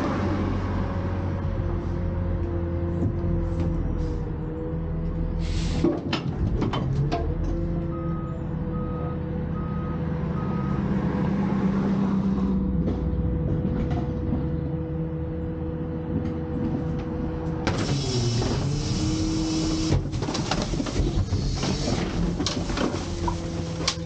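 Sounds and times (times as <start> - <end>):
garbage truck hydraulics droning: 1.5 - 11.0, 16.1 - 24.0.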